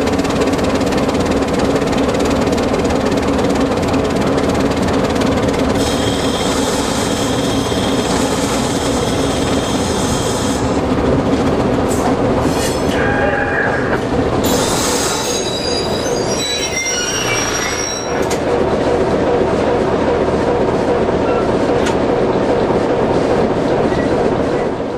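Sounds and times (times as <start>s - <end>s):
diesel locomotive running: 0.0s - 24.9s
high-pitched wheel squeal: 14.5s - 18.4s.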